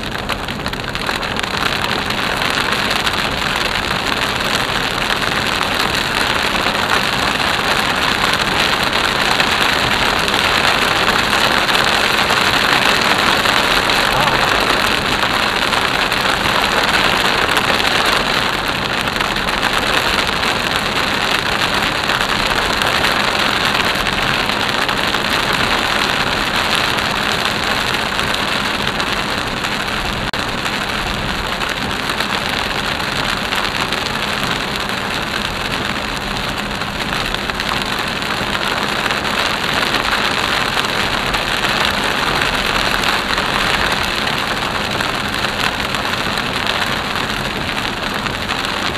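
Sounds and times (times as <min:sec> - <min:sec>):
heavy rain on car roof: 0:00.0 - 0:48.9
tyres hissing on flooded road: 0:11.1 - 0:17.8.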